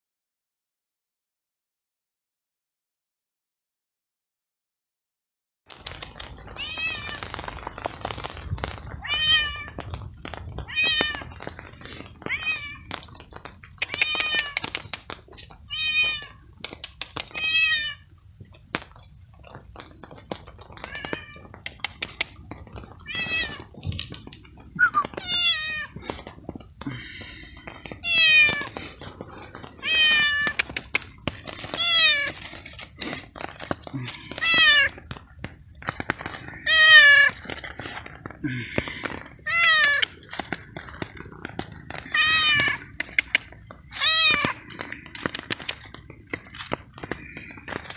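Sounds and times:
cat meowing: 6.6s - 7.4s, 9.0s - 9.8s, 12.2s - 13.0s, 13.9s - 14.6s, 15.7s - 16.4s, 17.3s - 18.1s, 23.0s - 23.8s, 24.8s - 26.0s, 27.9s - 28.8s, 29.7s - 30.8s, 31.7s - 32.4s, 34.2s - 35.0s, 36.5s - 37.4s, 38.6s - 40.2s, 42.0s - 43.0s, 43.9s - 44.6s
sharp little clicks and taps: 9.5s - 17.6s, 18.4s - 36.6s.

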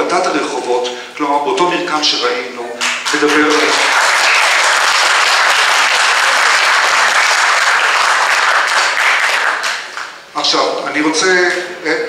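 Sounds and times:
audience applauding: 2.8s - 10.2s.

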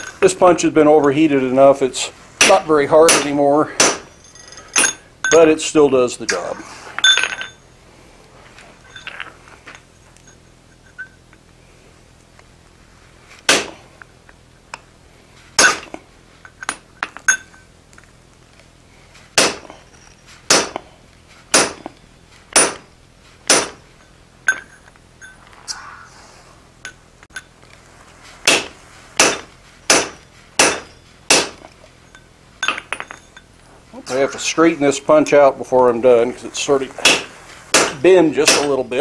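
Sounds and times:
hammer striking metal punch: 2.4s - 4.1s, 13.5s - 13.8s, 15.6s - 15.9s, 19.4s - 19.7s, 20.5s - 20.9s, 21.5s - 22.9s, 23.5s - 23.8s, 28.5s - 31.6s, 37.0s - 38.8s.

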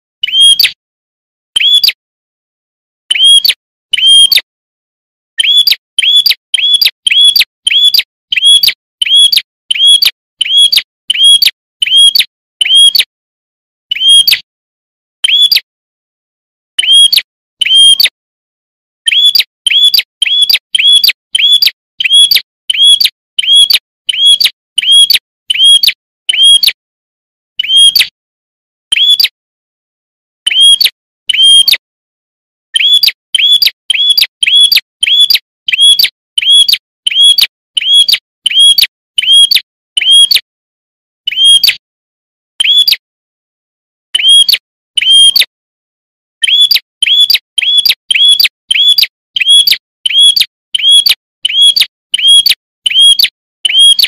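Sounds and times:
bird calling high sharp notes: 19.1s - 26.5s, 32.8s - 40.2s, 46.4s - 53.9s.

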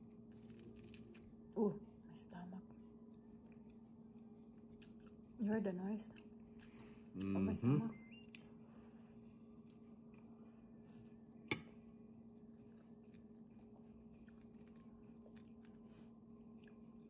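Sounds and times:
steady low hum: 0.0s - 17.0s
person chewing: 0.3s - 1.4s, 3.4s - 5.4s, 12.6s - 17.0s.

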